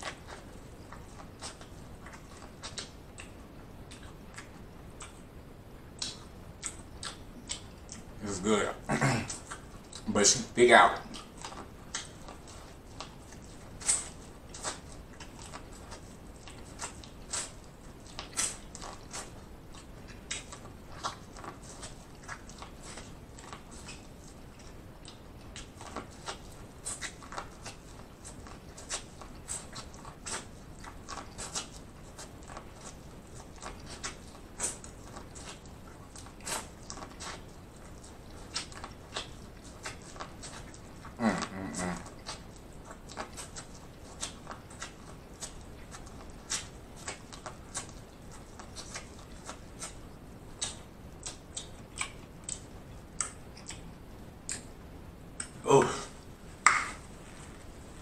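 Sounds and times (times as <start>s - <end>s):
crunchy chewing of corn: 0.0s - 5.3s, 5.9s - 58.0s.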